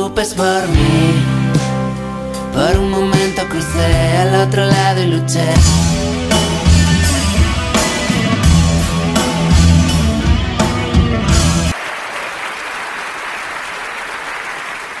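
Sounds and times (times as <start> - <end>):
rock music with drums: 0.0 - 11.8
crowd applauding: 11.4 - 15.0.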